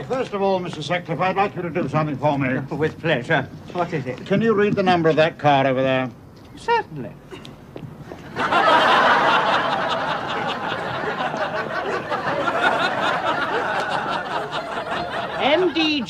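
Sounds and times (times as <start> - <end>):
studio audience laughing: 8.2 - 16.0.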